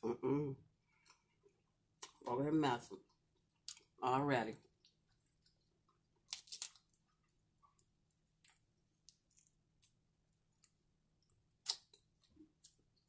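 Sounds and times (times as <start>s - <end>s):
crab shell cracking: 6.3s - 7.0s.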